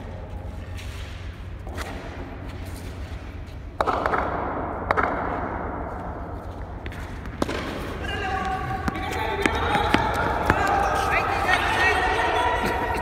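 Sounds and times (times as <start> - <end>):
steady low hum: 0.0 - 13.0
ball striking bat: 3.8 - 5.7, 6.9 - 10.7.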